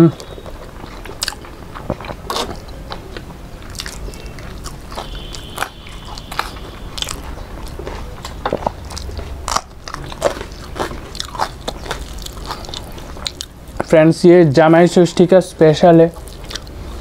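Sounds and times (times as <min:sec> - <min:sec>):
crunchy chewing of fried food: 0:00.0 - 0:14.0, 0:16.1 - 0:17.0.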